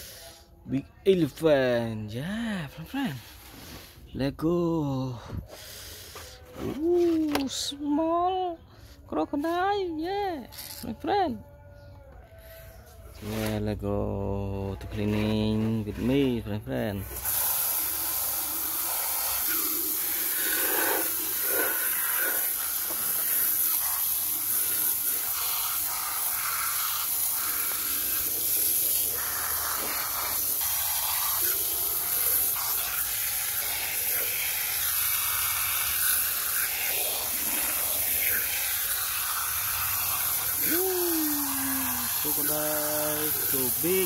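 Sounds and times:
water jet spraying and splashing: 17.0 - 44.0.

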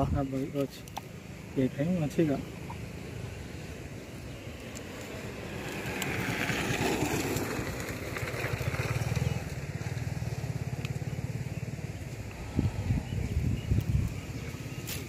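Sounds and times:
small engine running: 5.5 - 12.5.

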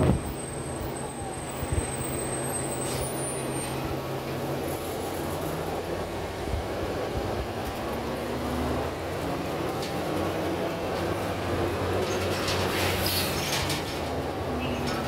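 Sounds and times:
bus engine drone and road noise: 0.0 - 15.0
light clatter: 11.9 - 15.0.

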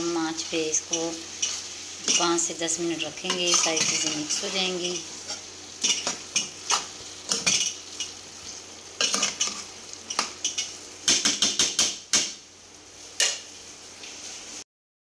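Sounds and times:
oil sizzling: 0.0 - 14.6
metal spoon scraping a pot: 9.0 - 9.7.

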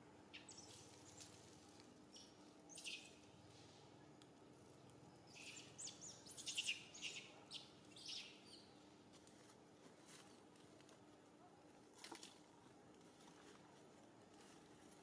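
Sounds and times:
faint steady hum: 0.0 - 15.0
birds chirping: 5.1 - 8.8.

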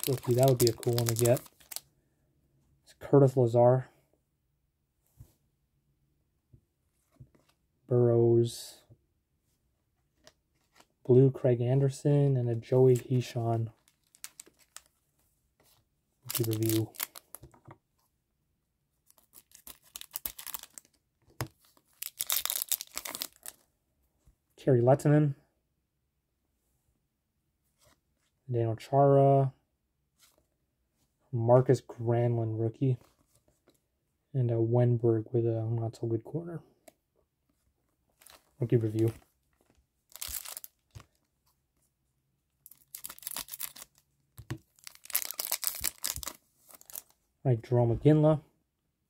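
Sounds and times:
foil wrapper crinkling and tearing: 0.0 - 1.8, 13.8 - 14.9, 16.3 - 17.4, 19.1 - 20.9, 21.9 - 23.6, 40.1 - 41.1, 42.7 - 44.0, 44.7 - 47.1.

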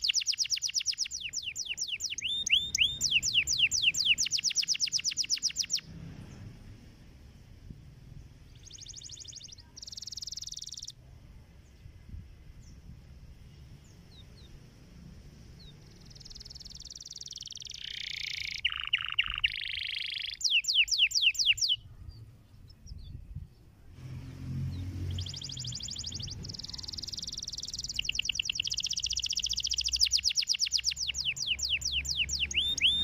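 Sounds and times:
canary trilling: 0.0 - 5.8, 8.6 - 10.9, 15.8 - 21.8, 24.7 - 33.0
sharp downward-sweeping whistles: 0.0 - 5.8, 16.3 - 21.8, 25.1 - 33.0.

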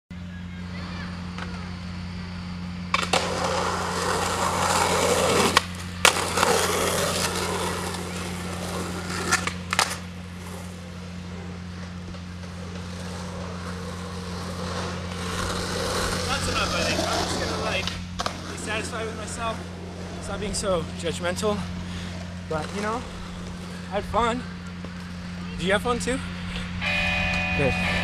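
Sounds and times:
low hum: 0.1 - 28.0
skateboard wheels rolling on asphalt: 0.7 - 28.0
skateboard clacking on ground: 5.4 - 10.1.

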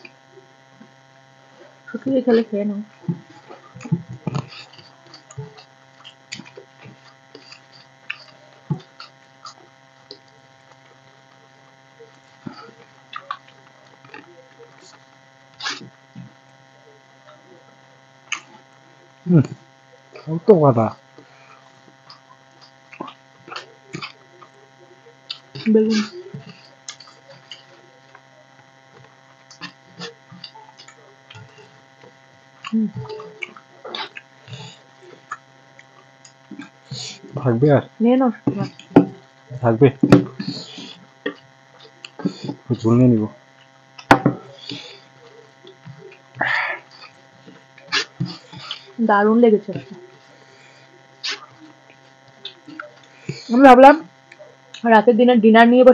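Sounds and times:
people eating by hand: 0.0 - 54.9
electrical hum: 0.0 - 55.9
chewing: 3.0 - 11.4, 12.0 - 16.5, 17.3 - 18.8, 21.2 - 37.4, 40.2 - 42.8, 43.4 - 49.0, 49.7 - 53.5, 54.1 - 54.8
chewing and mouth smacks: 28.9 - 34.6, 35.2 - 37.1.

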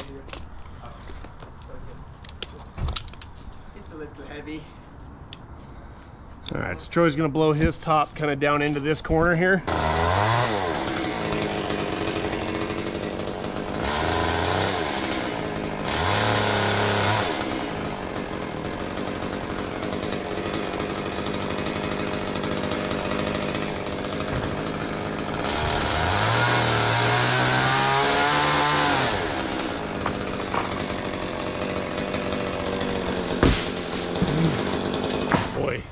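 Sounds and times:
chainsaw revving: 9.6 - 35.8.

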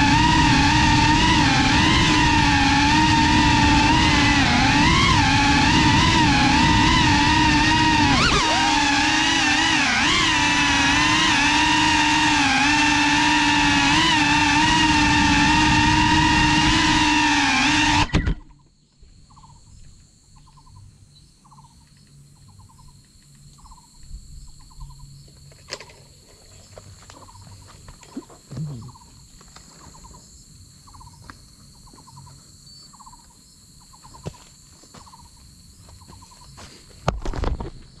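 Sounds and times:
high-pitched insect drone: 0.0 - 36.7
rapidly pulsed insect chirp: 18.4 - 38.0
bump and rustle: 36.6 - 38.0.

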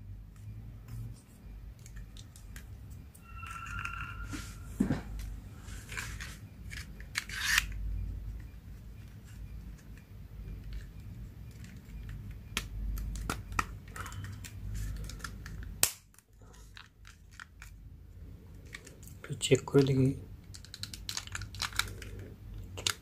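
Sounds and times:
plastic clicks and rubbing: 20.4 - 23.0.

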